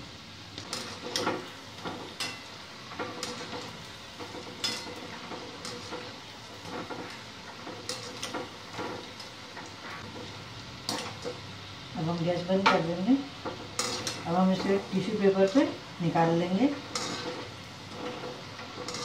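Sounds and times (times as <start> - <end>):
food sizzling in hot oil: 0.0 - 19.0
skimmer scraping metal pan: 16.8 - 19.0.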